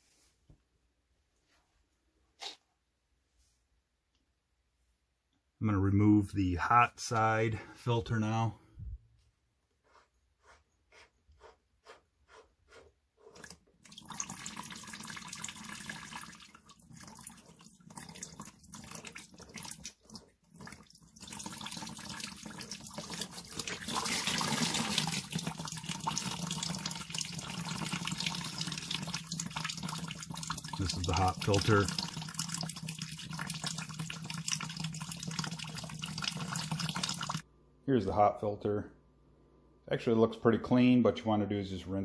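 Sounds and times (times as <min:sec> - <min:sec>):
water draining and splashing: 0:13.4 - 0:37.4.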